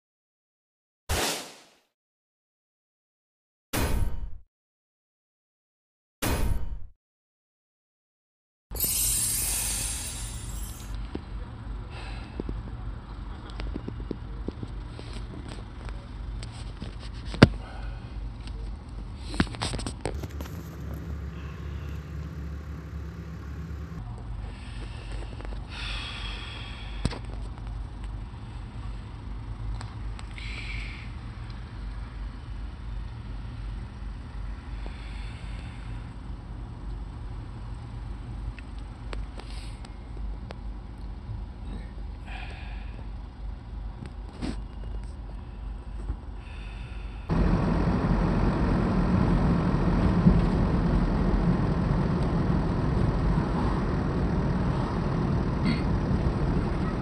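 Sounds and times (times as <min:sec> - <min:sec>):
diesel engine rumble: 0:09.8 - 0:57.0
diesel truck engine droning: 0:20.1 - 0:25.0, 0:46.4 - 0:57.0.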